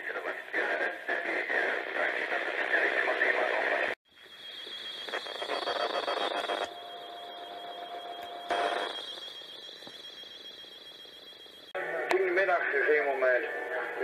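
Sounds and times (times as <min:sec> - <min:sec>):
radio band static: 0:00.0 - 0:14.0
high-pitched whistle: 0:04.1 - 0:11.7.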